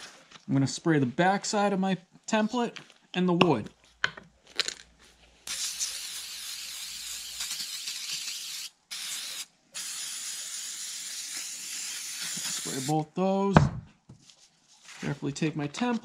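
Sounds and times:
aerosol can spraying: 0:05.5 - 0:12.9.

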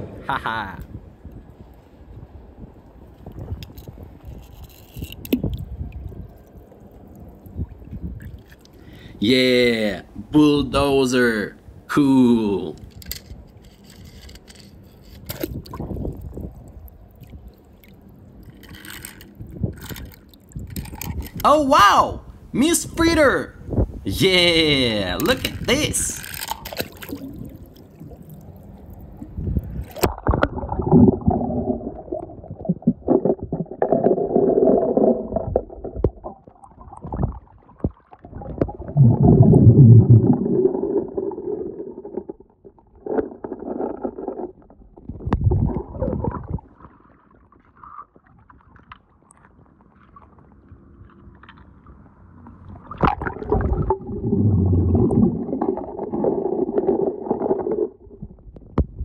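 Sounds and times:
underwater water sloshing: 0:25.5 - 0:58.7.

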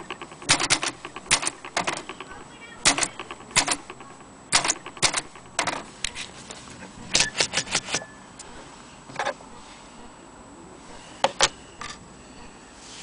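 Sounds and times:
manual typewriter clacking: 0:00.0 - 0:06.2, 0:07.1 - 0:08.0.

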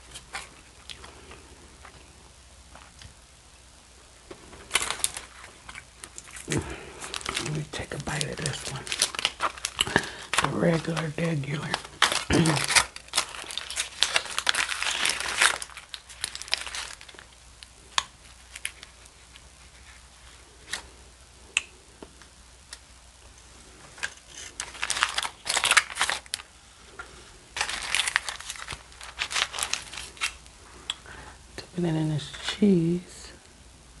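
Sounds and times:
aluminium foil crinkling: 0:00.0 - 0:02.1, 0:04.3 - 0:21.0, 0:23.4 - 0:31.2.

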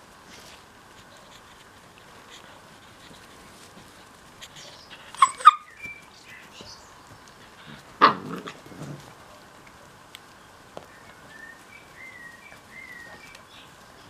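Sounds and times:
puppies yipping: 0:04.5 - 0:06.1
puppy barking: 0:05.2 - 0:05.7, 0:08.0 - 0:08.6.

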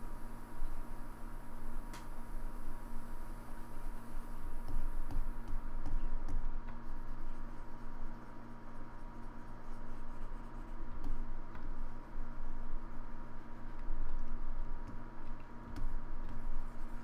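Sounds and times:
electrical hum and hiss: 0:00.0 - 0:17.0
faint clicks and scratches: 0:04.6 - 0:17.0.

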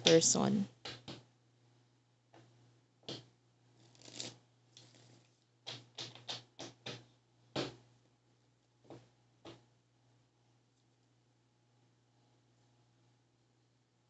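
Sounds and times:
cards shuffled by hand: 0:03.8 - 0:07.0.

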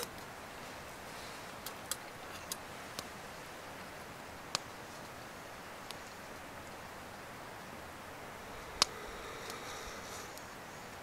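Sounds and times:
wood fire crackling and popping: 0:00.0 - 0:00.4, 0:01.4 - 0:03.2, 0:03.8 - 0:08.0, 0:08.6 - 0:11.0.

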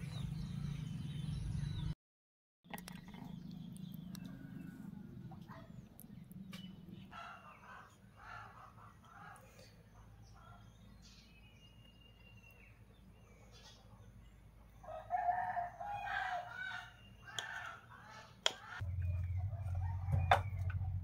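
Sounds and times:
rooster crowing: 0:14.8 - 0:17.0, 0:19.5 - 0:20.9.

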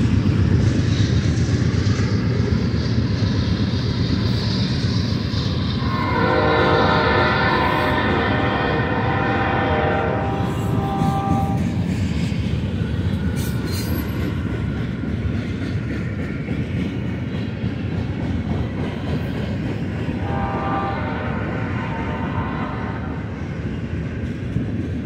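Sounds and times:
freight train wheels clattering: 0:00.0 - 0:25.0
locomotive horn: 0:05.8 - 0:11.8, 0:20.2 - 0:23.4.

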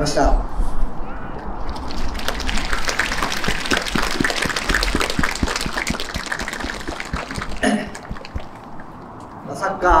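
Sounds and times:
crowd clapping: 0:01.7 - 0:09.1.

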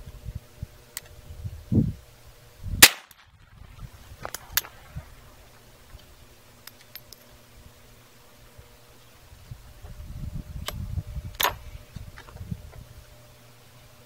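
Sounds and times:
shotgun firing: 0:02.8 - 0:03.6.

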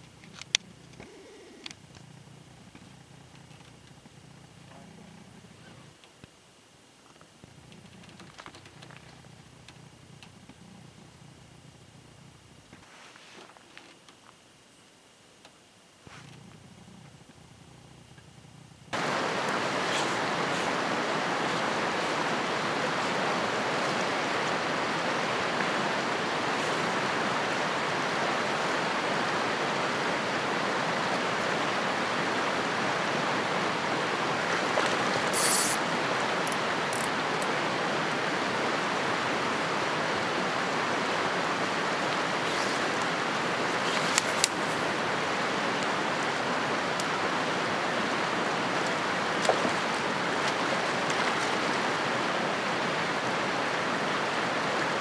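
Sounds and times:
river rushing over rocks: 0:19.0 - 0:55.0.

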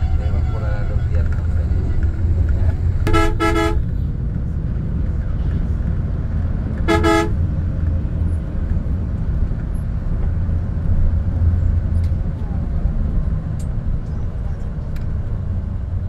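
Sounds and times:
horn double honk: 0:00.0 - 0:02.3, 0:03.0 - 0:03.9, 0:06.8 - 0:07.4
coach engine and road rumble: 0:00.0 - 0:16.0.

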